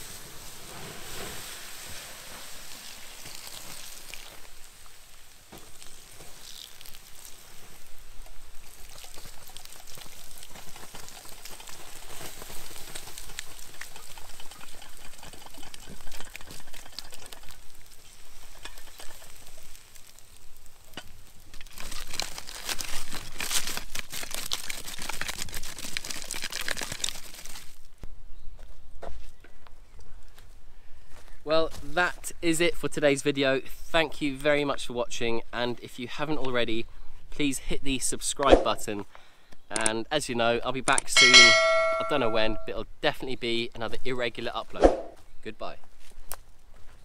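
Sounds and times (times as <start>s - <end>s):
stick scraping wet ashes: 0.0s - 26.4s
water hissing on embers: 0.0s - 27.8s.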